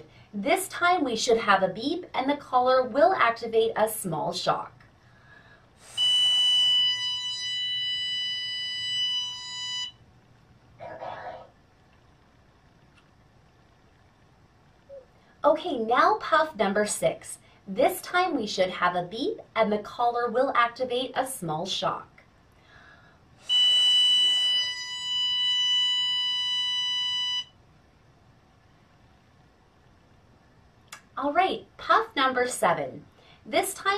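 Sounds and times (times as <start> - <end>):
high electronic beep: 5.9 - 10.0, 23.5 - 27.5.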